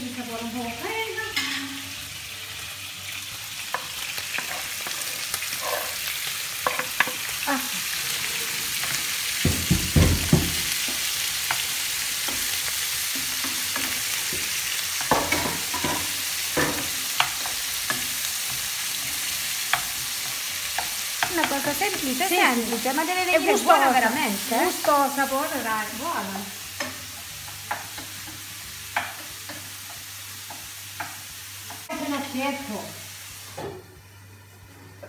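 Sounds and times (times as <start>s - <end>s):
sausage sizzling in a frying pan: 0.0s - 35.0s
wooden spoon scraping a pan: 3.7s - 7.3s.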